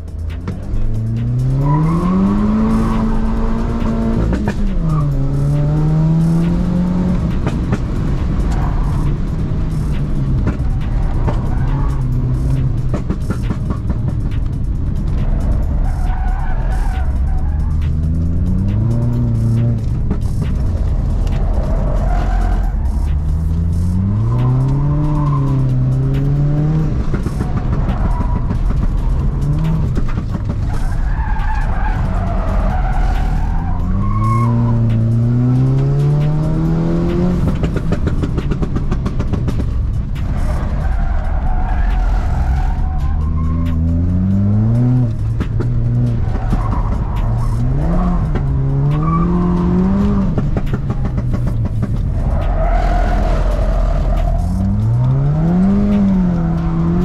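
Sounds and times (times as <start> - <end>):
car engine accelerating: 0.0 - 57.0
tyres squealing: 21.3 - 37.6, 51.0 - 57.0.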